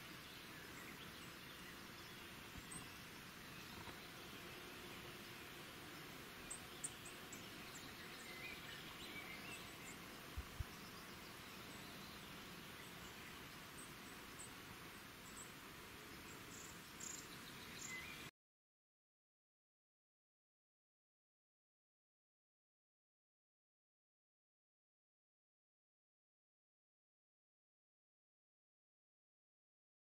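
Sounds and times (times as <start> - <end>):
steady low hiss: 0.0 - 18.3
insect or bird chirps: 6.0 - 18.3.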